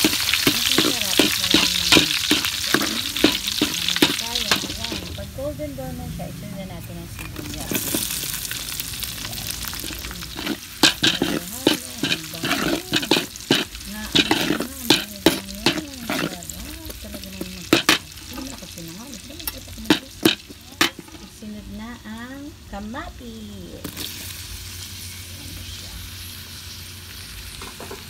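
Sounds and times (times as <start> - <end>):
metal spoon scraping wok: 0.0 - 5.3, 6.6 - 21.6
garlic and onion sizzling in oil: 0.0 - 28.0.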